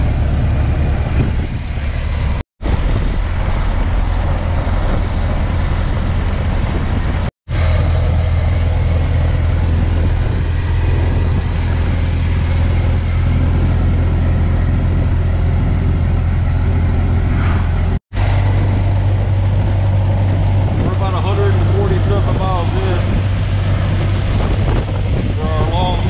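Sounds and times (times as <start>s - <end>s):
car engine running: 0.0s - 26.0s
road noise: 0.0s - 26.0s.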